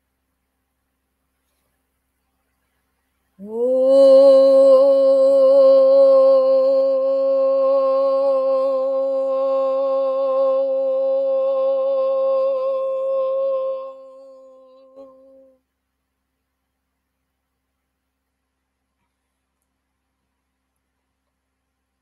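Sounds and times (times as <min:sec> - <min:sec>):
woman toning long vowel: 0:03.4 - 0:15.6.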